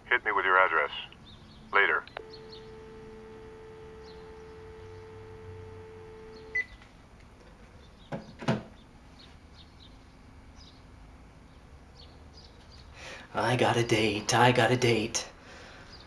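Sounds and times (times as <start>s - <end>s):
telephone dial tone: 2.2s - 6.7s.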